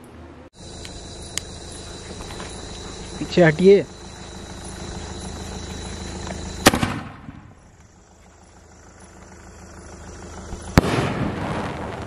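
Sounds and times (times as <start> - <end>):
firework shell bursting bang: 6.6 - 7.5, 10.7 - 12.0.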